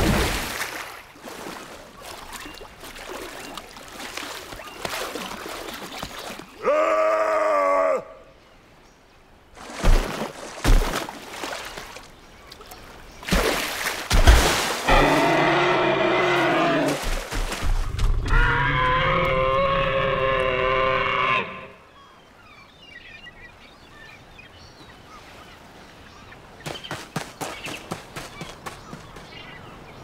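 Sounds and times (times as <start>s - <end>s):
cartoon dinosaur roaring: 14.9s - 16.9s.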